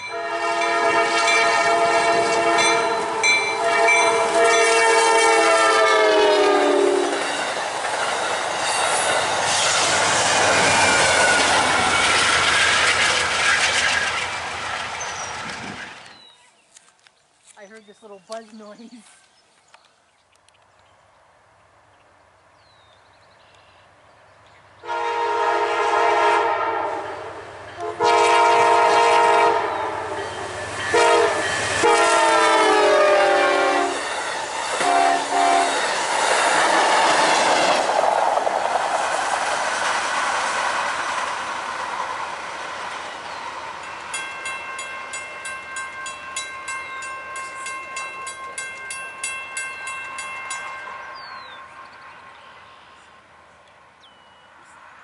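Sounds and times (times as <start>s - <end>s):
train horn blasts: 0.0s - 7.2s, 24.8s - 34.0s, 34.8s - 35.9s
train cars rushing past: 0.0s - 16.4s, 24.1s - 55.0s.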